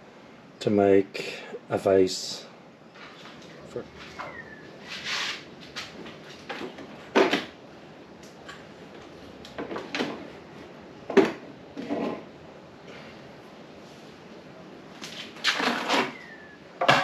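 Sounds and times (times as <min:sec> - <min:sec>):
sharp knocks and scrapes: 0:04.1 - 0:07.5, 0:11.1 - 0:12.3, 0:15.0 - 0:16.2.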